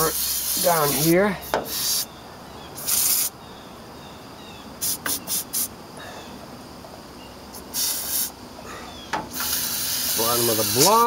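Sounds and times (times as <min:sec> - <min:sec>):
aerosol can spraying: 0:00.0 - 0:02.1, 0:02.8 - 0:03.3, 0:04.8 - 0:05.7, 0:07.6 - 0:08.4, 0:09.3 - 0:11.0.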